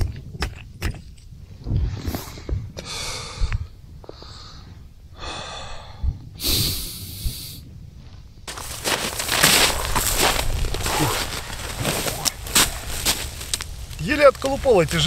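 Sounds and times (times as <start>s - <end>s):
person breathing heavily: 2.1s - 7.6s
rustling noise: 8.0s - 15.0s.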